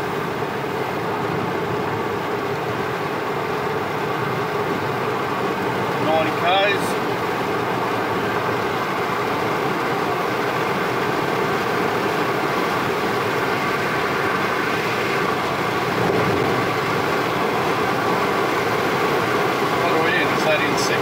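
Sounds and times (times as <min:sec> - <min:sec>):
car road and engine noise: 0:00.0 - 0:21.0.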